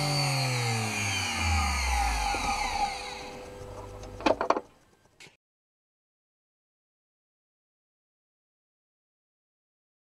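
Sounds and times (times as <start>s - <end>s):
electric motor whine spinning down: 0.0s - 4.4s.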